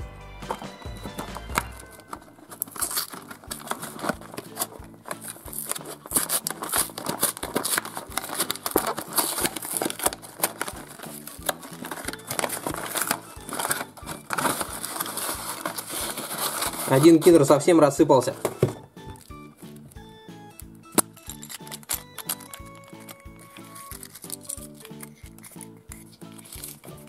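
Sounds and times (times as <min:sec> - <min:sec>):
quiet background music: 0:00.0 - 0:27.0
paper liner crinkling: 0:00.5 - 0:17.7, 0:21.0 - 0:27.0
cardboard box tearing: 0:01.6 - 0:17.4.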